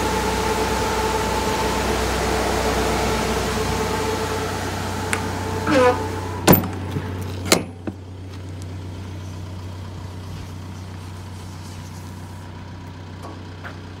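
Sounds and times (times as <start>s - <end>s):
truck engine idling: 0.0s - 14.0s
metal truck door latch clunk: 5.7s - 8.0s.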